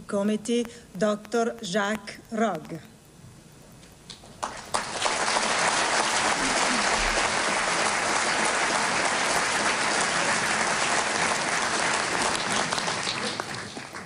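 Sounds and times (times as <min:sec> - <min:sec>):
crowd applauding: 0:04.4 - 0:14.0.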